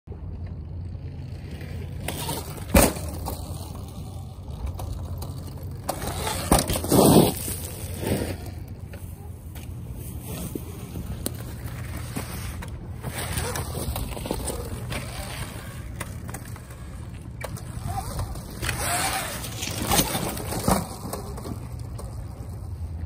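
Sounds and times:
dirt bike tyres landing on gravel: 4.9 - 16.6.

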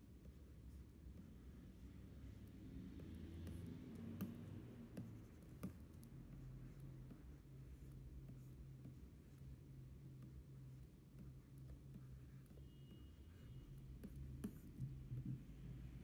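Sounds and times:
stylus strokes on glass screen: 0.0 - 16.0
stylus tapping on screen: 2.5 - 7.3, 11.1 - 15.8.

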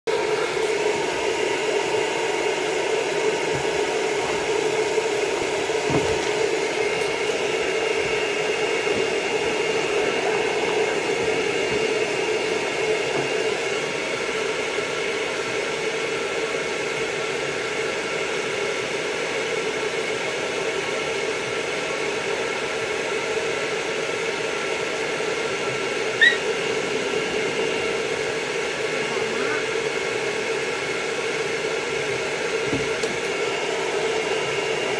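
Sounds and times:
pet dryer blowing air: 0.1 - 34.9
brief high squeak: 26.2 - 26.5.

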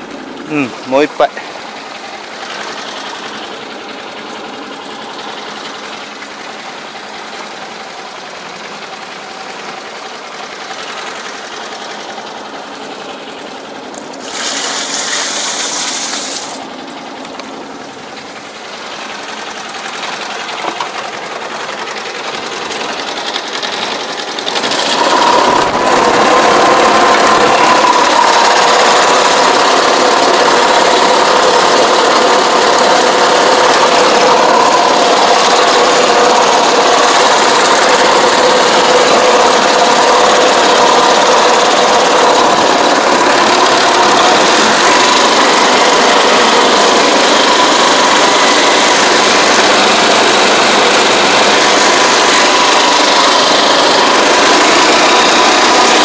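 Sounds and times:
small sprayer engine running: 0.0 - 56.0
rush of hiss: 14.2 - 16.6.

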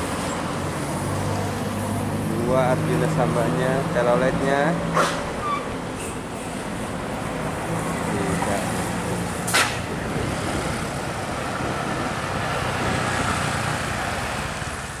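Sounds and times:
diesel bus engine: 0.0 - 15.0
road and traffic noise: 0.0 - 15.0
motorcycle: 6.8 - 15.0
sharp click: 9.5 - 9.8.

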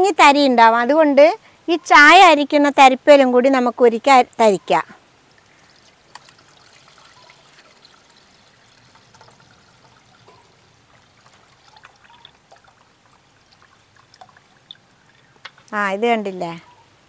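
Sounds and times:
liquid trickling into pot: 5.3 - 15.5.

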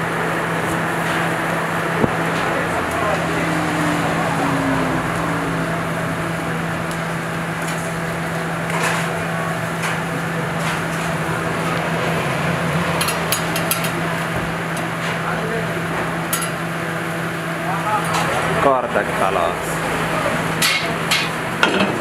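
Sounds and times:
low even hum: 1.9 - 13.2.

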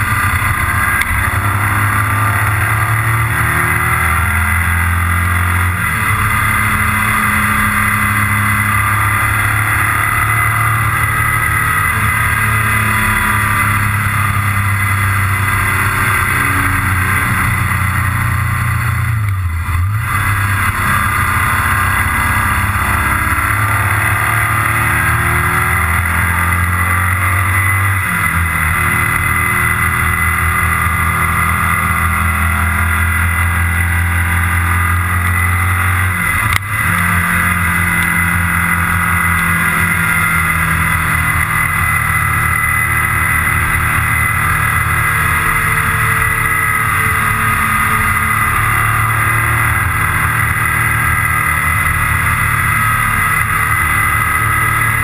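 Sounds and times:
motorcycle engine running: 0.0 - 55.0
wind and road noise: 0.0 - 55.0
click: 36.5 - 36.7.

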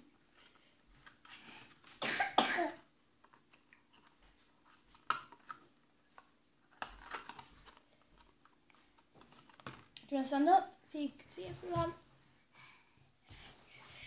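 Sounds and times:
person coughing: 2.0 - 2.8
cardboard carton crinkling: 6.8 - 9.9.

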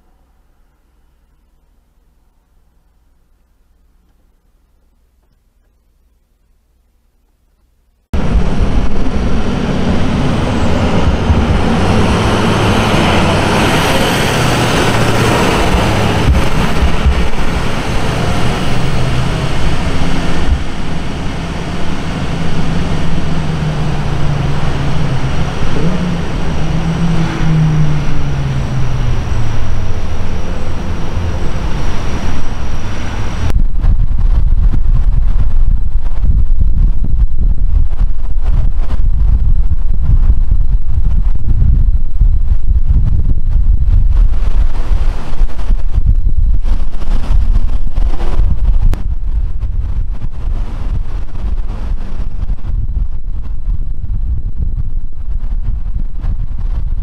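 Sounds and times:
road noise: 0.0 - 6.2, 8.1 - 57.0
wind rumble on microphone: 8.1 - 57.0
truck engine driving off: 8.2 - 53.4.

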